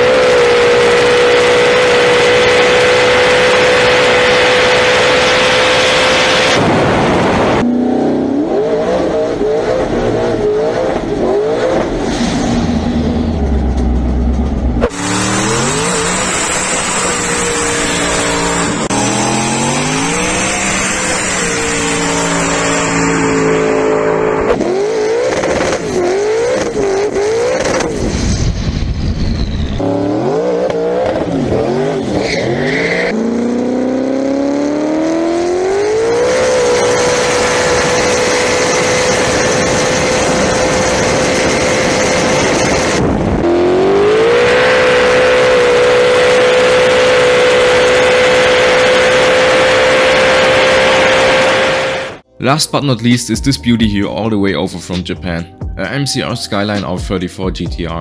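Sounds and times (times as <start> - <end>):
turbocharged car engine revving: 0.0 - 52.3
tyres screeching in burnout: 14.9 - 23.8, 31.1 - 33.3.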